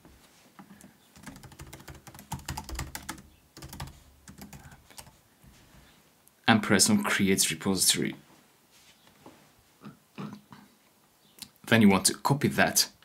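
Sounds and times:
computer keyboard typing: 1.2 - 5.1.

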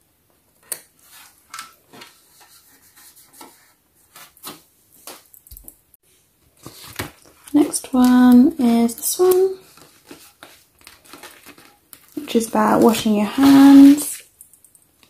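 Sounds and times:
sticker paper rustling: 6.6 - 14.2.

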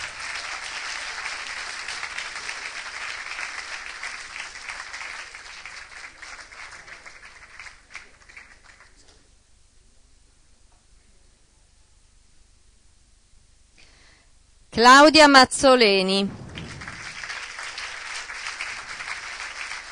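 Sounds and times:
audience applauding: 0.0 - 9.1, 16.3 - 19.9.

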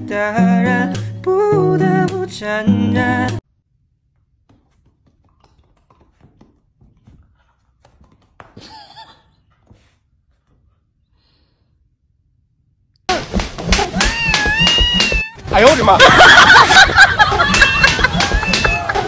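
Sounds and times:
music: 0.0 - 3.4.

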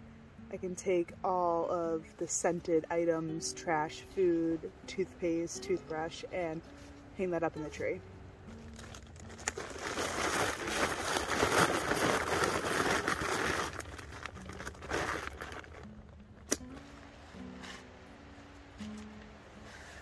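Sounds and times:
plastic and nylon crinkling: 8.5 - 16.9.

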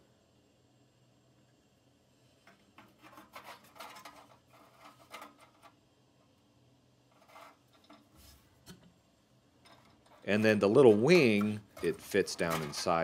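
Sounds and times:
scraping on sheet metal: 2.8 - 5.6, 7.1 - 8.4, 9.7 - 13.0.

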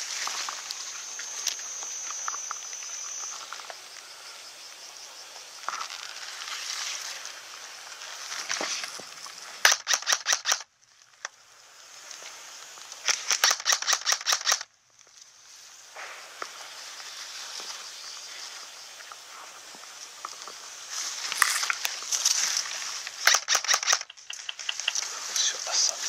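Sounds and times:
airsoft rifle shots: 9.6 - 10.6, 13.1 - 14.7, 23.2 - 24.4.

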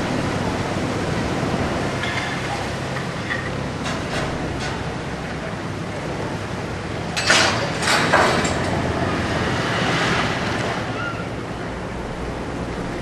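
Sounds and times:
ship engine low rumble: 0.0 - 13.0
rushing clattering sounds: 7.1 - 10.8.

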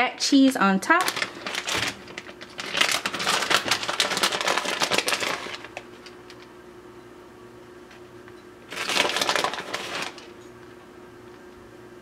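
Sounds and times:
plastic bag crinkling: 0.4 - 6.5, 8.7 - 10.4.

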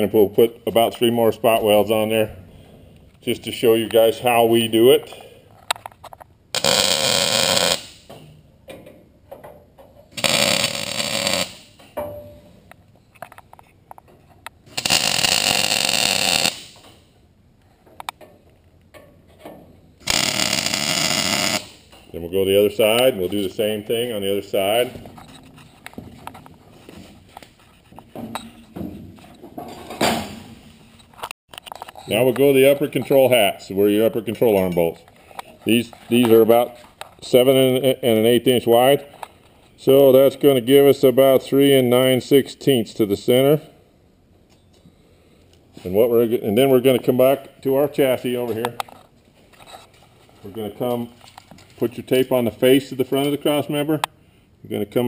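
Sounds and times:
footsteps on concrete floor: 24.7 - 31.2.

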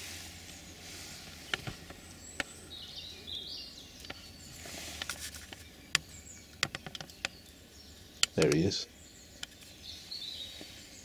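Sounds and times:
bird chirping: 0.0 - 11.0
sharp isolated clicks: 8.2 - 8.7.

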